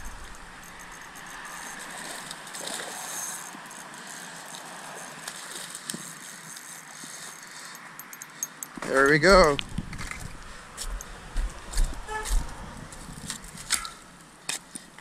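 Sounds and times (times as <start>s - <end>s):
fish splashing: 0.0s - 7.3s
fishing reel winding: 0.0s - 8.7s.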